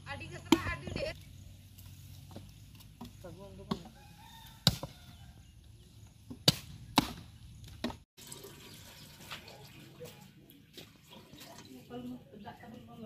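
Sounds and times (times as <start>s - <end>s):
axe chopping firewood: 2.2s - 5.0s, 6.2s - 8.0s
water pouring into clay pot: 8.2s - 12.0s.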